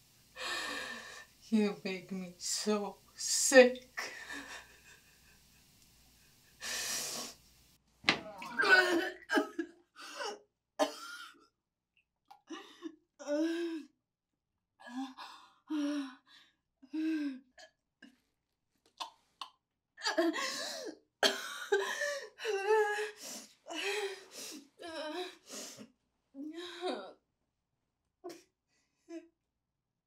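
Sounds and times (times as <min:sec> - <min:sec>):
woman sobbing: 0:04.0 - 0:05.2, 0:08.3 - 0:10.4, 0:20.0 - 0:25.4, 0:26.4 - 0:27.2
woman retching and gagging: 0:08.1 - 0:09.6.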